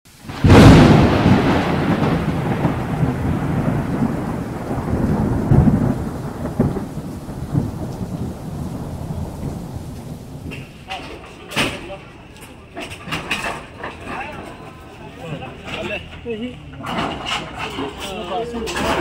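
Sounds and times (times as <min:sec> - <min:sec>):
boom: 0:00.2 - 0:10.7.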